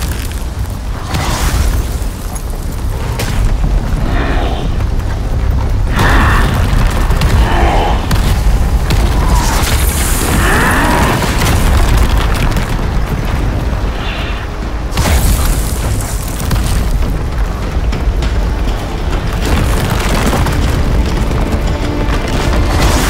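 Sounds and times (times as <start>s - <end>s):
deep rumble: 0.0s - 23.0s
rock debris scattering: 0.0s - 23.0s
booms and crashing: 5.7s - 23.0s.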